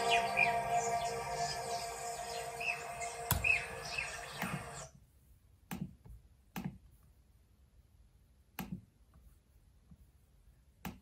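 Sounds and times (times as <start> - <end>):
music with birdsong: 0.0 - 4.9.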